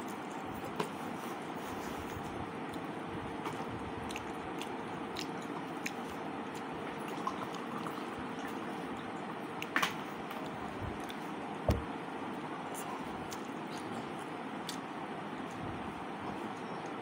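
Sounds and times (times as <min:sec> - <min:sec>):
person chewing mouth sounds: 0:01.9 - 0:11.4, 0:12.6 - 0:15.6.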